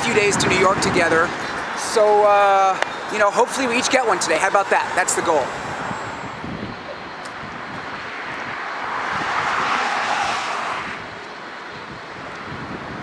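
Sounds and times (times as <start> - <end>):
background traffic rush: 0.0 - 13.0
vehicle passing by: 7.4 - 11.5.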